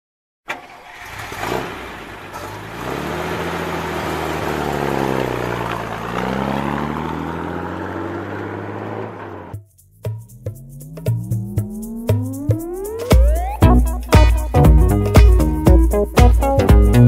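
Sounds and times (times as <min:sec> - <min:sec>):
vehicle engine revving: 0:00.5 - 0:09.6.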